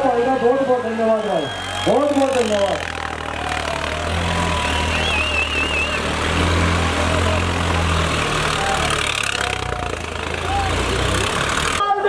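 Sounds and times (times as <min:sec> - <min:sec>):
faint crowd voices: 0:00.0 - 0:12.0
tractor diesel engine droning: 0:00.0 - 0:12.0
warbling whistle: 0:01.1 - 0:06.1.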